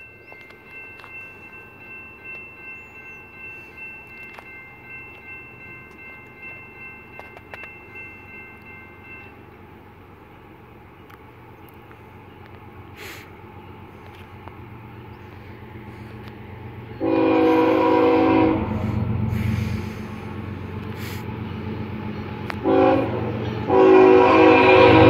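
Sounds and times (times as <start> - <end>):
freight train rumble: 0.0 - 25.0
distant locomotive horn chord: 16.8 - 20.5, 21.6 - 25.0.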